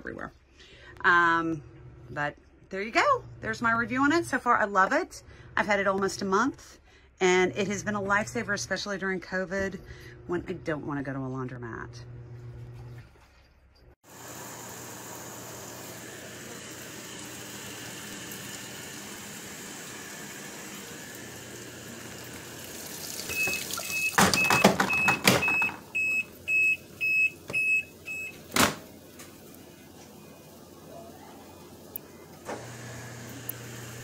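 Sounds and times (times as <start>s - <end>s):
water pumping through drain hose: 14.1s - 30.6s
washing machine beeps: 21.8s - 28.8s.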